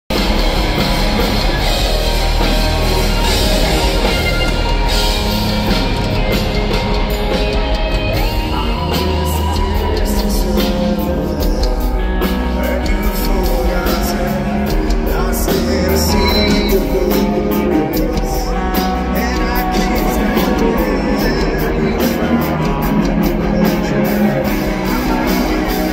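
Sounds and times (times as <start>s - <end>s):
live rock band playing: 0.1s - 25.9s
man singing: 7.4s - 25.9s.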